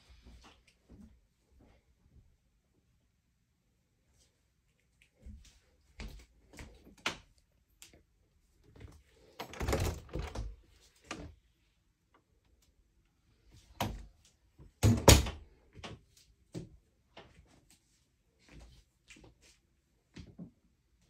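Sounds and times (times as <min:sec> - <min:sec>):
closet door knocks and rattles: 0:09.4 - 0:10.6, 0:14.8 - 0:15.5
closet door thudding: 0:14.8 - 0:15.4.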